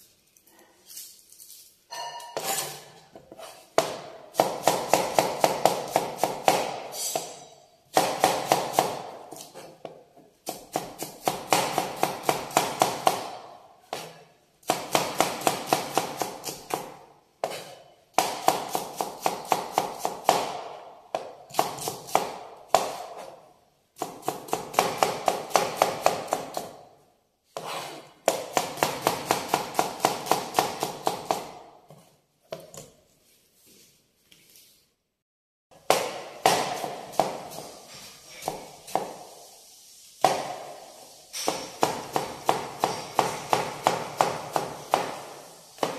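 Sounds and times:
knife chopping on cutting board: 2.4s - 7.3s, 7.9s - 23.4s, 24.0s - 26.8s, 27.6s - 33.0s, 35.7s - 39.3s, 40.2s - 40.7s, 41.4s - 45.2s.

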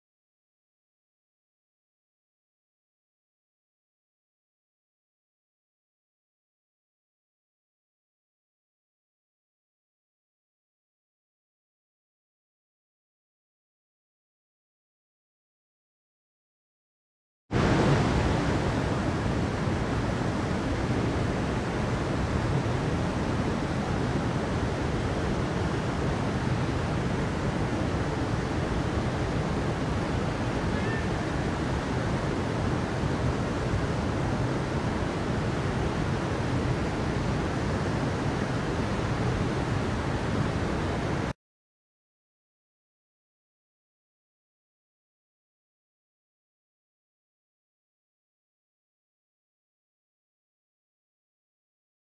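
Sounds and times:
waterfall roaring: 17.6s - 41.3s.

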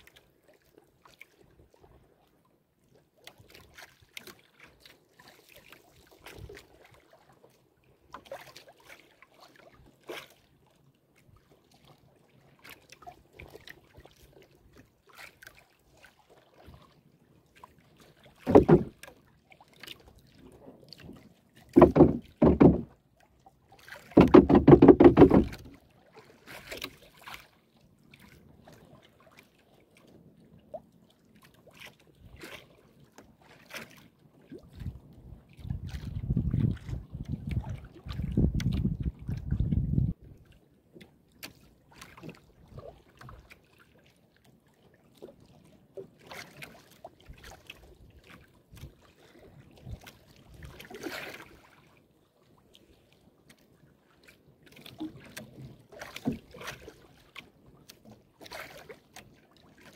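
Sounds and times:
paddle strokes in water: 0.0s - 59.9s
loud knocks: 18.5s - 18.9s, 21.8s - 22.9s, 24.2s - 25.7s.

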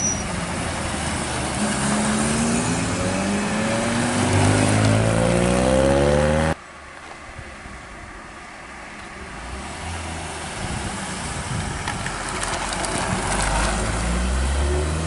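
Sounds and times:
car engine passing: 0.4s - 6.6s.

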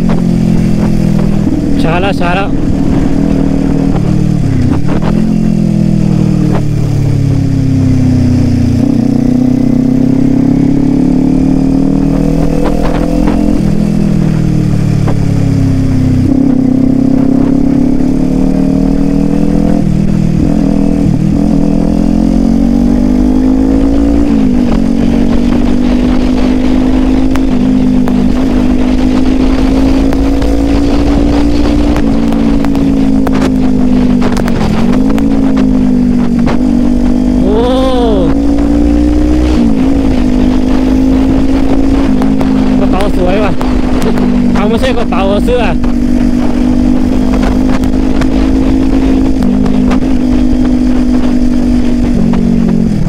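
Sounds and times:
motorcycle engine revving: 0.0s - 53.0s.

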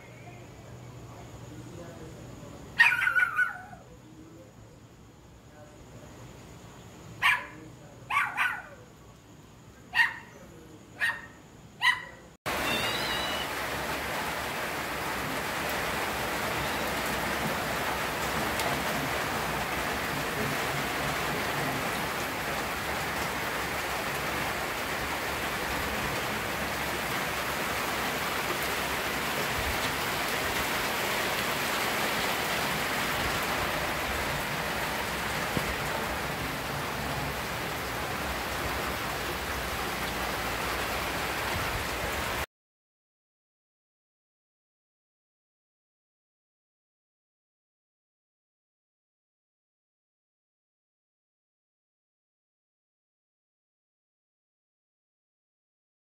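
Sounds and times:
rain falling steadily: 0.0s - 42.5s.

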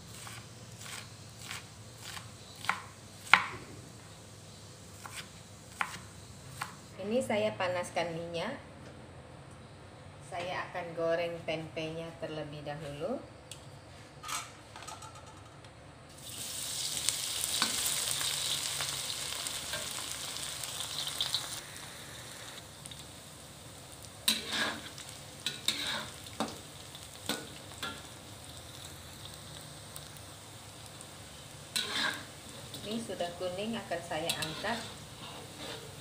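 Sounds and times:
food sizzling in hot oil: 0.0s - 7.0s, 16.1s - 36.0s
metal spatula scraping a wok: 24.2s - 26.2s, 31.7s - 32.9s, 34.2s - 36.0s.

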